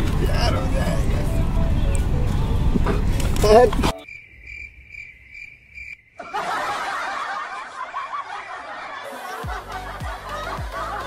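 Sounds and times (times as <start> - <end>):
cricket chirping: 3.9 - 6.6
burst of laughter: 6.2 - 11.0.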